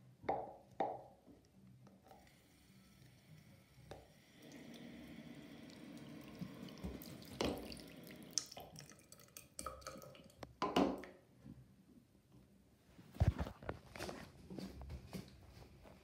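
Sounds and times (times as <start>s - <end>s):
water running from sink tap: 2.2s - 9.0s.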